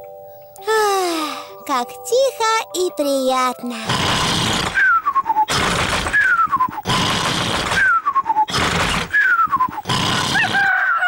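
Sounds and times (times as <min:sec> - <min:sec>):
cartoon pig snoring: 0:03.8 - 0:04.9, 0:05.5 - 0:10.7.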